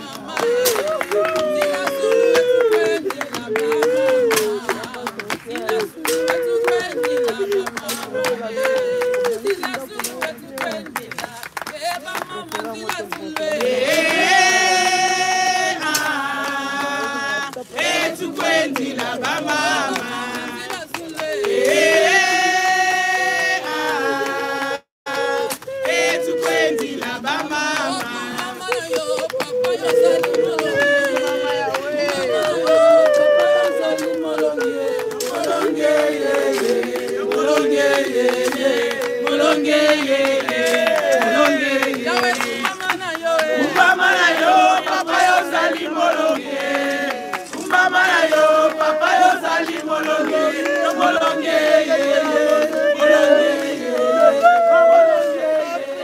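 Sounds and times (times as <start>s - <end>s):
hand claps: 0.0s - 15.1s, 15.7s - 22.2s, 25.1s - 55.7s
group singing a hymn: 0.0s - 56.0s.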